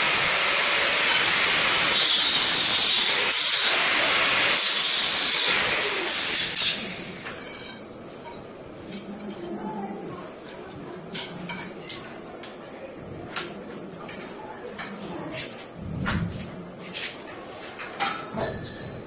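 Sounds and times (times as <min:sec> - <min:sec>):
angle grinder grinding metal: 0:00.0 - 0:07.2
metal clinks: 0:18.3 - 0:19.0.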